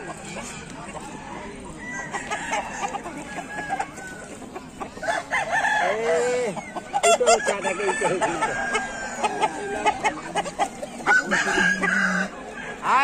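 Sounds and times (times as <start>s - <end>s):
chickens clucking: 0.0s - 13.0s
rooster crowing: 1.3s - 4.4s, 5.0s - 9.8s, 11.0s - 13.0s.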